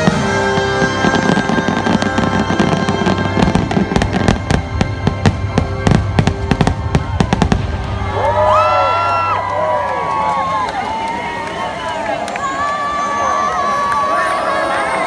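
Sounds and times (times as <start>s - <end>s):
fireworks bangs and crackling: 0.0s - 9.2s.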